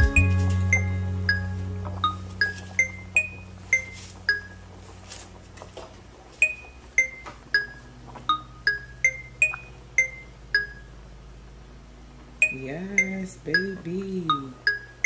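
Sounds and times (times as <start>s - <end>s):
bell-like melody: 0.0s - 4.6s.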